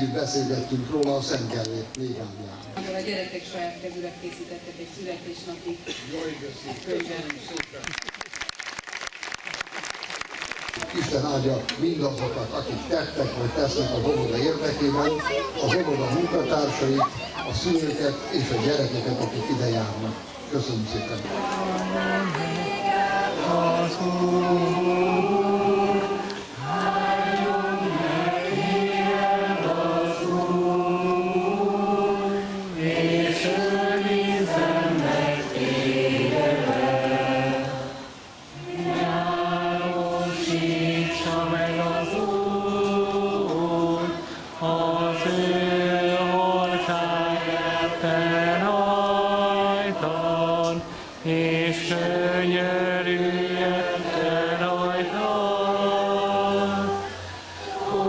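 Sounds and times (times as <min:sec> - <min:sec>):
group of voices singing: 0:12.9 - 0:58.0.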